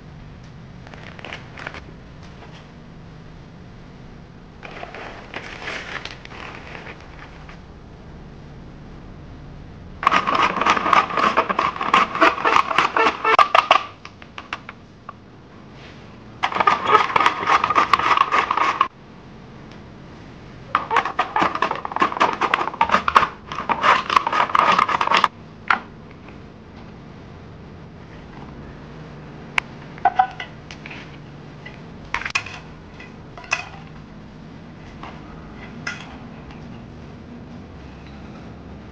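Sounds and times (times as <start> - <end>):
vegetables shredded on mandoline: 10.0 - 14.0, 16.4 - 18.9, 20.8 - 25.3.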